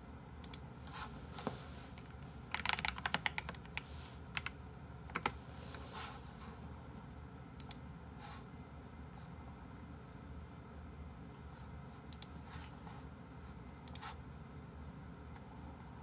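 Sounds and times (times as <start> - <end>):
computer keyboard typing: 2.5 - 5.4.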